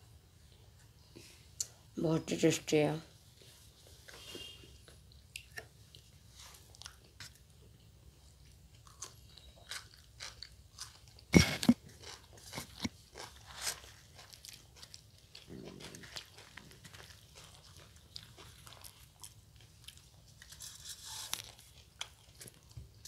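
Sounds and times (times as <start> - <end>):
people chewing and biting: 4.8 - 23.0.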